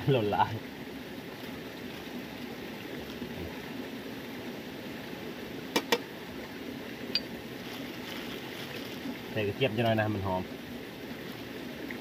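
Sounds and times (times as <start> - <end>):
fire crackling: 0.0 - 12.0
wood fire hissing: 0.0 - 12.0.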